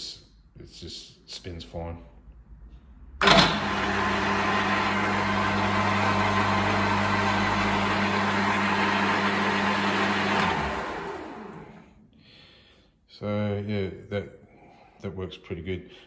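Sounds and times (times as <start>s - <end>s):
lathe motor humming and whining: 3.2s - 11.8s.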